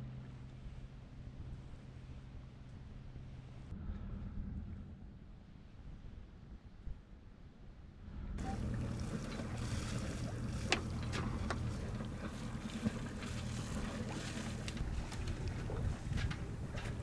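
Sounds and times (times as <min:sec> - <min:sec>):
faint low rumble: 0:00.0 - 0:17.0
water along hull: 0:00.0 - 0:17.0
wind on microphone: 0:03.6 - 0:17.0.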